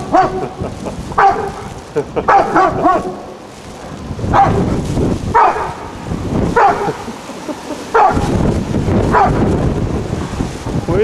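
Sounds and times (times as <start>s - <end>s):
dog barking: 0.0s - 0.6s, 1.2s - 3.4s, 4.3s - 5.9s, 6.5s - 7.1s, 7.9s - 8.4s, 9.0s - 9.5s.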